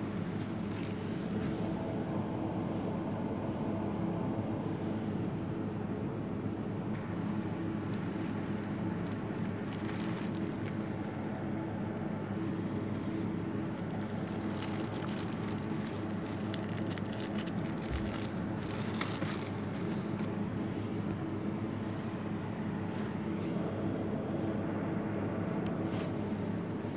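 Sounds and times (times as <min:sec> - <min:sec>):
low steady hum: 0:00.0 - 0:26.9
plastic packaging crinkling: 0:07.7 - 0:11.4, 0:13.6 - 0:20.3.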